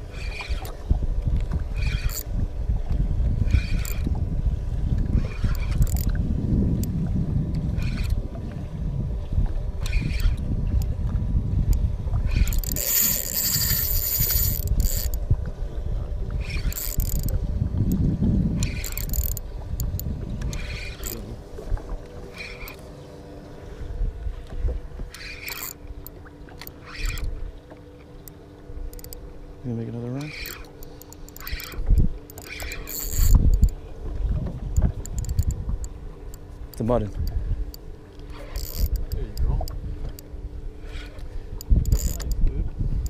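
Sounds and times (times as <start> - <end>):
wind rumbling on microphone: 0.0 - 27.6, 28.7 - 43.0
water gurgling against boat hull: 31.4 - 37.4.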